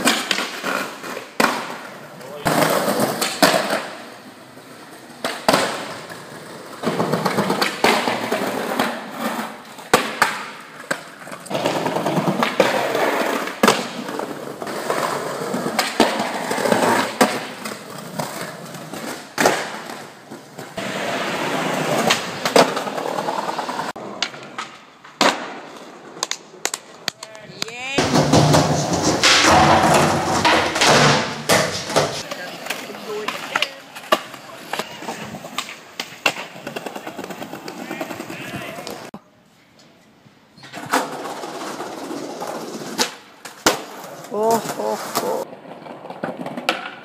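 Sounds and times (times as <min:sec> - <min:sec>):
skateboard popping and landing: 0:00.0 - 0:39.1, 0:40.6 - 0:47.0.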